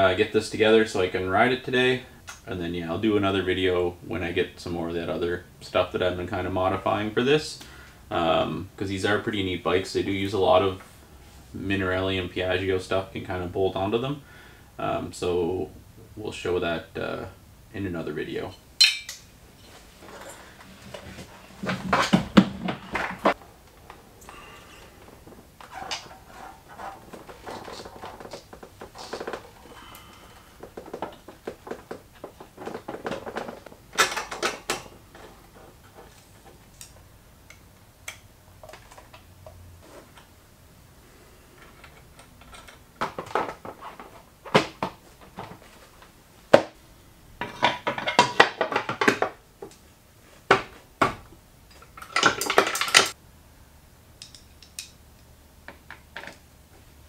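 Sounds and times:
hand tools clinking on metal: 18.5s - 20.4s.

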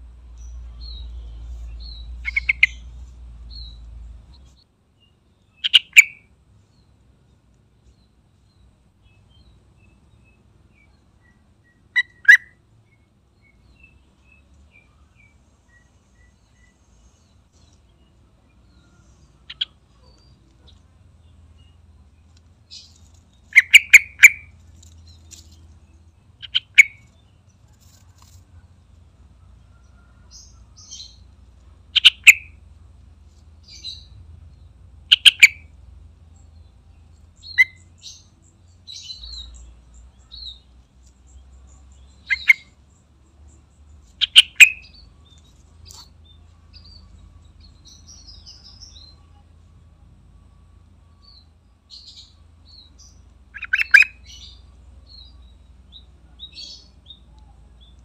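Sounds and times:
soft bird chirps: 0.0s - 58.0s
bird singing bubbly phrases: 53.5s - 54.4s.

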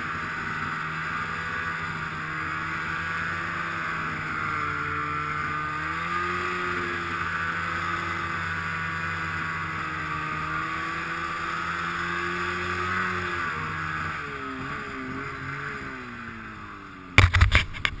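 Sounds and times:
snowmobile engine running: 0.0s - 18.0s
loud irregular knocks and rumbles: 17.2s - 18.0s.

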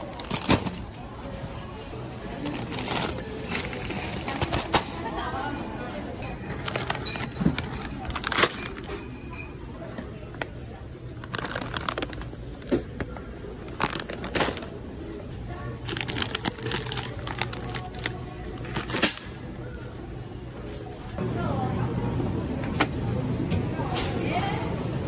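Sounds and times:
plastic snack bags crinkling: 0.0s - 1.0s, 2.2s - 5.5s, 6.3s - 9.1s, 11.1s - 14.9s, 15.6s - 19.4s.

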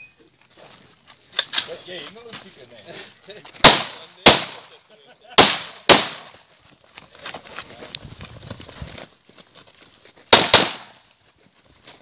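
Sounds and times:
rifle shots: 3.6s - 4.7s, 5.4s - 6.4s, 10.3s - 11.0s
gunshot echo: 3.6s - 4.8s, 5.4s - 6.4s, 10.3s - 11.0s
footsteps running on gravel: 6.5s - 10.4s, 11.0s - 12.0s.

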